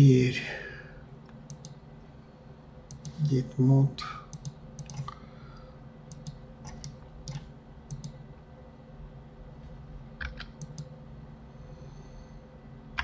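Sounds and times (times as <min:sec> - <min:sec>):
steady low hum: 0:00.0 - 0:13.0
keyboard and mouse clicks: 0:01.4 - 0:01.8, 0:02.9 - 0:03.3, 0:04.3 - 0:05.2, 0:06.1 - 0:08.2, 0:10.2 - 0:10.9.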